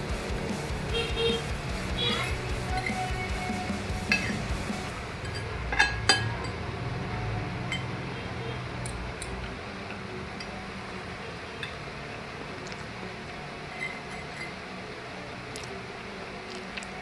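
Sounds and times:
cutlery clinking on plate: 0:05.2 - 0:06.6.

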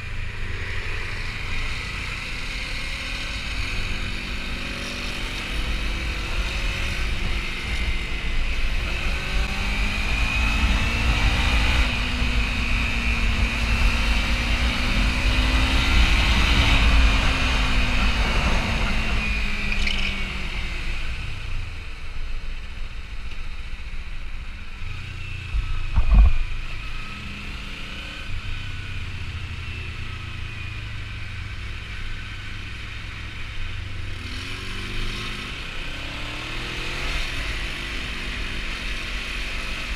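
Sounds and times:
motorcycle engine running: 0:24.4 - 0:27.5
wind rumble on microphone: 0:25.4 - 0:26.8
sharp thump: 0:25.9 - 0:26.5.

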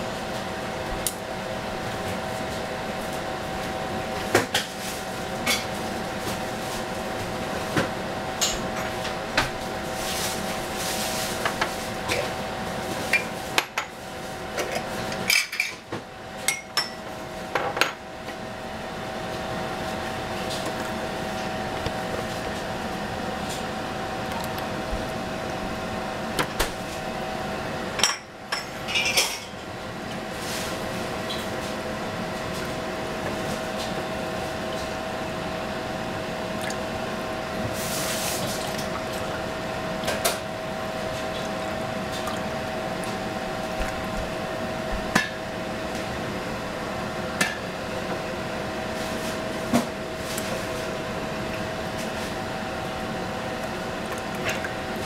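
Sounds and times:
steady hum: 0:16.1 - 0:55.0.

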